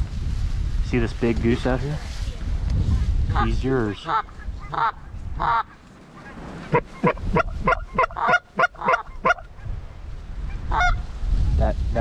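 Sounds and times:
geese honking: 0:03.4 - 0:09.7, 0:10.5 - 0:11.0.

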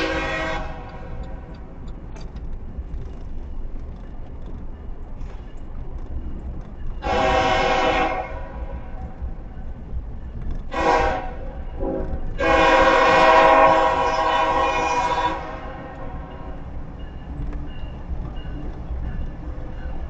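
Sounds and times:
locomotive air horn blasts: 0:00.0 - 0:01.5, 0:07.0 - 0:09.1, 0:10.7 - 0:16.5.

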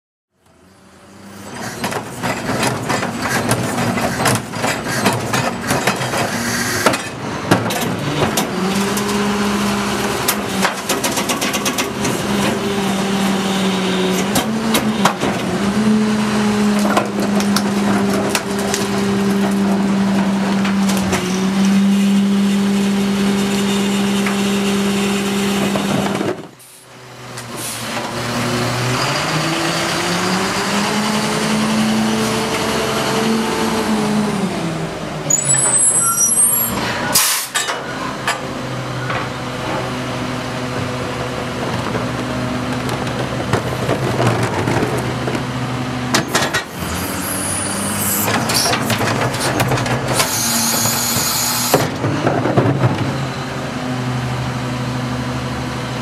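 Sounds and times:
garbage truck engine drone: 0:00.4 - 0:56.0
hydraulic packer compacting: 0:35.2 - 0:54.5.

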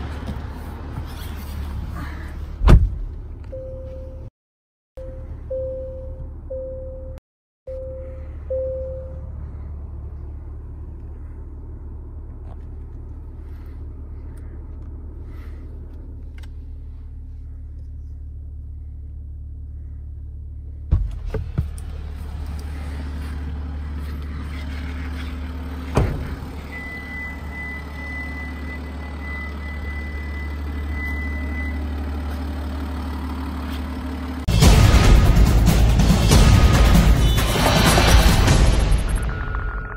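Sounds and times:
thump: 0:02.6 - 0:03.0, 0:25.9 - 0:26.4
steady high beep: 0:05.0 - 0:09.3, 0:39.1 - 0:39.9
diesel engine idling: 0:07.7 - 0:39.5.

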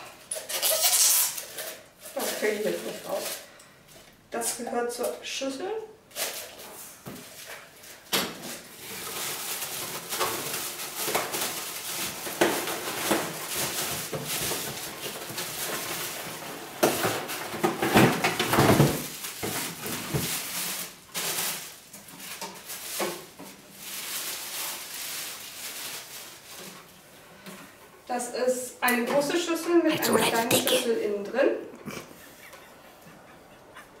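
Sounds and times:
packaging rustling and scraping: 0:00.0 - 0:04.1, 0:06.1 - 0:27.6.

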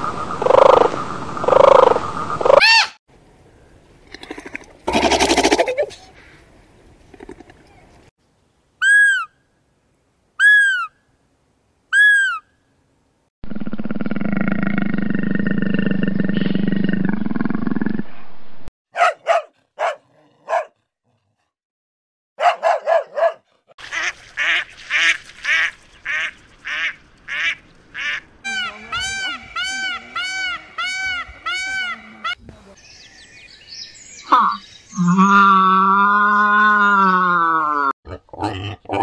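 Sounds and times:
long low rasping animal call: 0:35.0 - 0:39.0.

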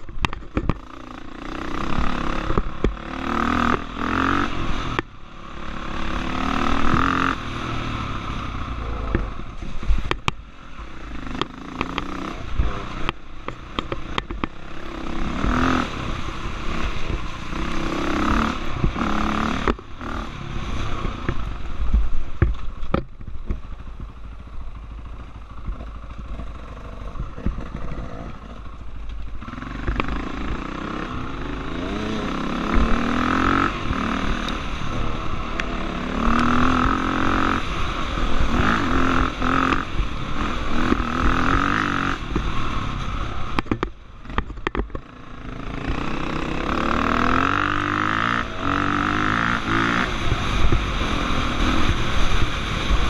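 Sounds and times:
bike knocks and rattles: 0:00.0 - 0:00.9, 0:21.2 - 0:24.3, 0:25.6 - 0:29.2, 0:43.5 - 0:45.1
dirt bike engine revving: 0:00.0 - 0:22.4, 0:25.0 - 0:53.0.

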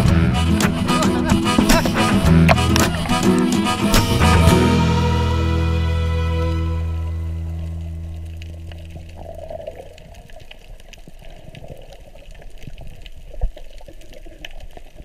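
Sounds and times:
song chord: 0:00.3 - 0:08.4
underwater rushing water: 0:06.8 - 0:15.0
sharp crackling clicks: 0:07.5 - 0:15.0.

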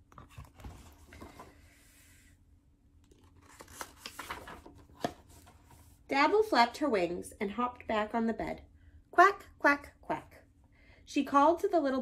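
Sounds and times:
book pages rustling: 0:00.0 - 0:01.7, 0:03.0 - 0:06.0.

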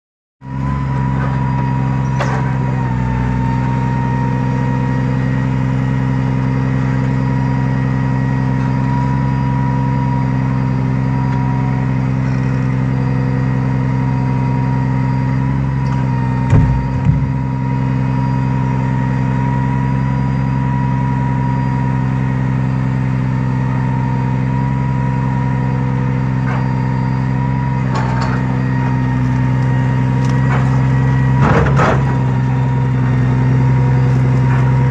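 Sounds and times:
truck engine running: 0:00.4 - 0:34.9
heavy knocks of log loader: 0:00.6 - 0:04.1, 0:15.8 - 0:17.8, 0:27.7 - 0:34.9.

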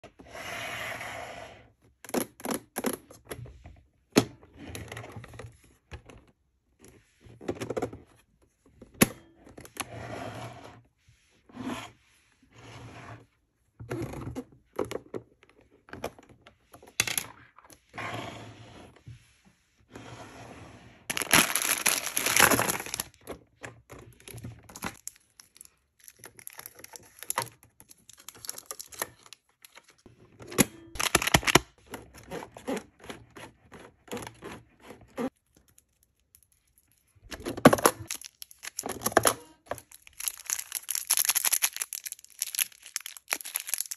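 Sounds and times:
foil wrappers crinkling: 0:21.1 - 0:23.2, 0:24.7 - 0:30.0, 0:31.0 - 0:31.6, 0:38.0 - 0:43.9.

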